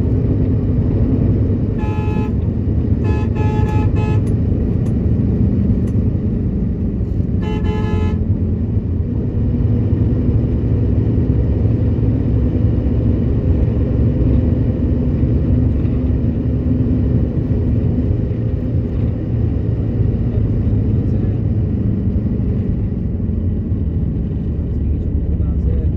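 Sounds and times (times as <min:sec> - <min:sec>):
bus engine and road rumble: 0:00.0 - 0:25.9
vehicle horn: 0:01.7 - 0:04.4, 0:07.4 - 0:08.3.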